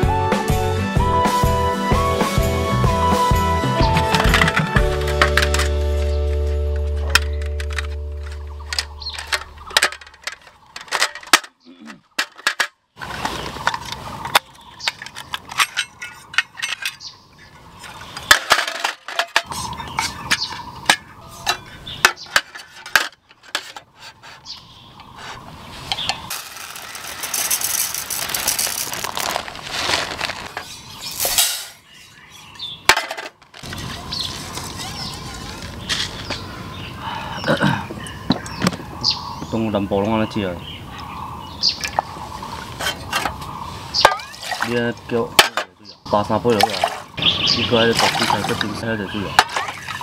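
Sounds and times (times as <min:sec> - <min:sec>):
metal camping gear clinking: 0:03.8 - 0:23.9, 0:25.9 - 0:31.8, 0:32.9 - 0:33.8, 0:42.8 - 0:44.8, 0:48.0 - 0:50.0
rice pouring from plastic bag: 0:26.3 - 0:30.7.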